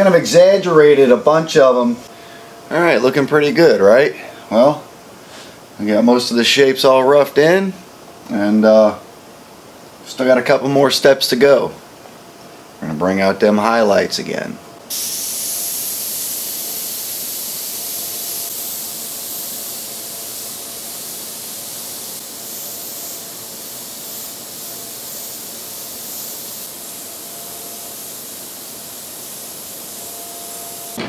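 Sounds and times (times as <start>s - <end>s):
airbrush hissing: 14.9s - 31.0s.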